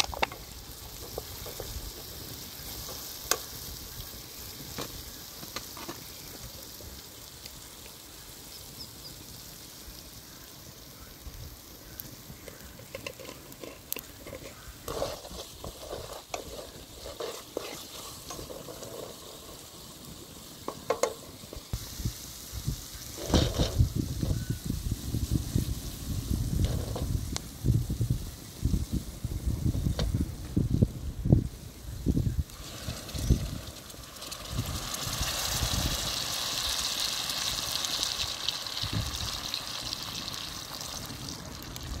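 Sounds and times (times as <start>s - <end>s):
food sizzling in pan: 0.0s - 42.0s
utensil scraping pan: 12.8s - 19.6s.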